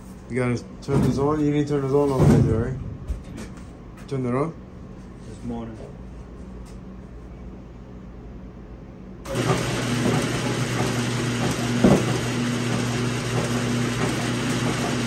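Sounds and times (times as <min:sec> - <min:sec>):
motor humming: 0:09.3 - 0:15.0.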